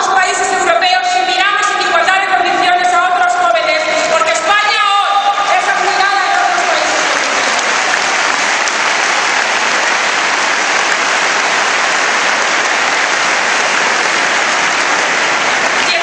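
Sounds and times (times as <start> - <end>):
crowd applauding: 4.3 - 16.0.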